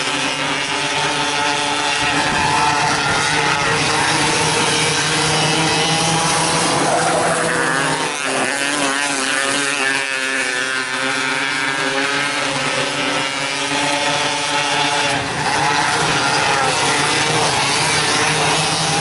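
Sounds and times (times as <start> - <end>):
race car engines running hard: 0.0 - 19.0.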